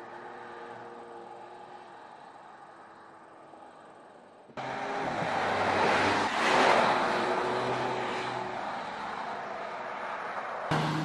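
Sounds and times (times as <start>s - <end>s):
tyre and road noise: 0.0s - 11.0s
car engine driving by: 10.7s - 11.0s.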